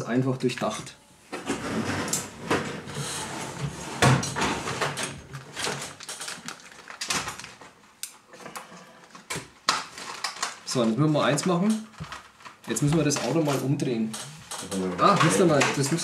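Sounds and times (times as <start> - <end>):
packaging rustling: 5.3 - 7.9, 9.0 - 16.0.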